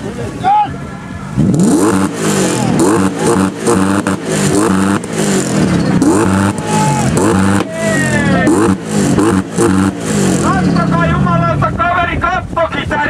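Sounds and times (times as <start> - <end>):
car engine revving: 1.3 - 11.8.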